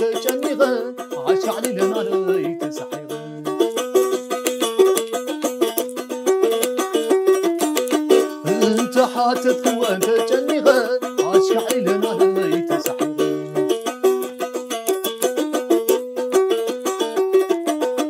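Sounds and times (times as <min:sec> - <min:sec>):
person singing: 0:00.0 - 0:03.6, 0:08.4 - 0:13.8
plucked lyre melody: 0:00.0 - 0:18.0.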